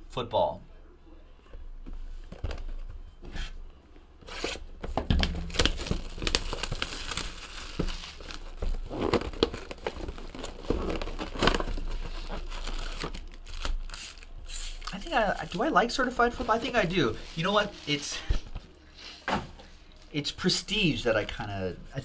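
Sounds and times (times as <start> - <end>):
foil card packs handled: 4.3 - 18.8
plastic wrap crinkling and tearing: 5.2 - 18.8
cardboard box being opened: 5.5 - 13.2.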